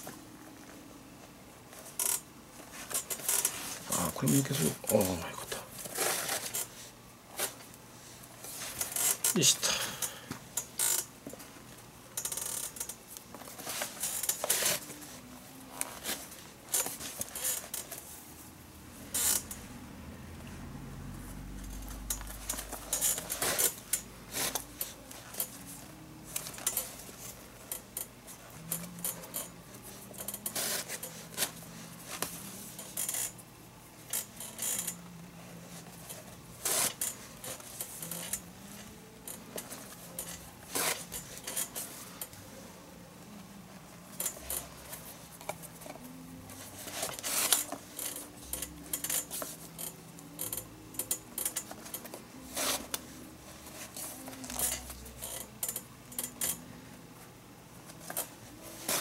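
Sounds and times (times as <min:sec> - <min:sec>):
lace scraping against leather: 0:01.7 - 0:07.6, 0:08.4 - 0:09.6, 0:10.6 - 0:11.1, 0:12.2 - 0:18.1, 0:19.1 - 0:19.6, 0:21.6 - 0:33.4, 0:34.1 - 0:42.4, 0:44.1 - 0:56.6, 0:57.9 - 0:59.0
leather lace pulled through glove: 0:35.8 - 0:41.9, 0:44.2 - 0:56.6.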